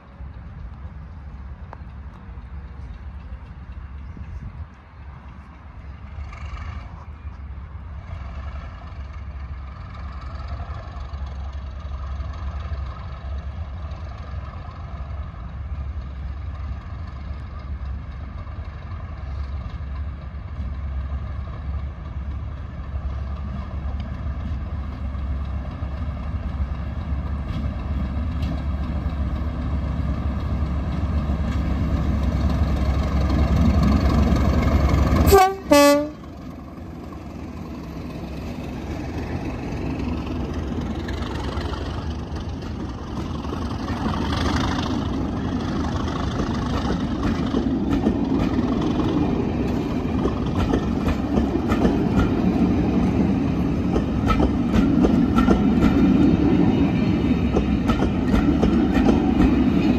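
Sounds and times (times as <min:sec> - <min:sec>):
diesel locomotive engine: 0:00.0 - 0:59.9
locomotive horn blast: 0:35.2 - 0:36.3.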